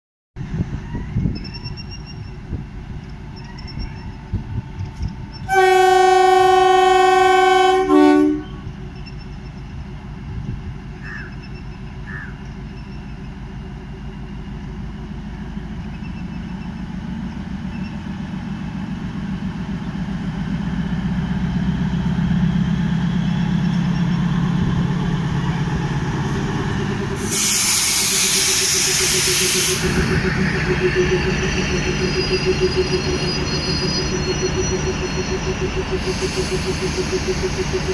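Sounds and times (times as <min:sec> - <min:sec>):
train engine and wheel rumble: 0:00.4 - 0:37.9
train horn: 0:05.4 - 0:08.8
loud hiss: 0:27.2 - 0:30.2, 0:36.0 - 0:37.9.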